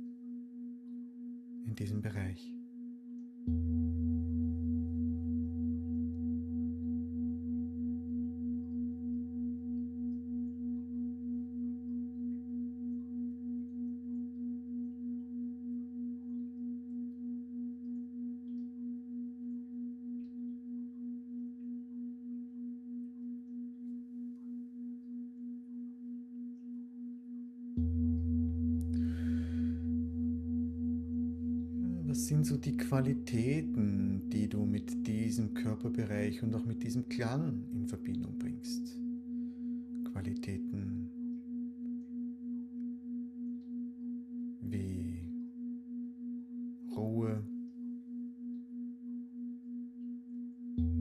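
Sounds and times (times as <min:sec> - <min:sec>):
singing bowl ringing: 0:27.8 - 0:33.8.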